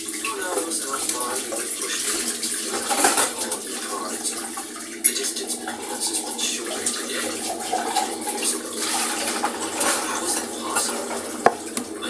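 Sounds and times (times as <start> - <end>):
tap running into a sink: 0.0 - 12.0
crockery knocking: 11.4 - 11.9.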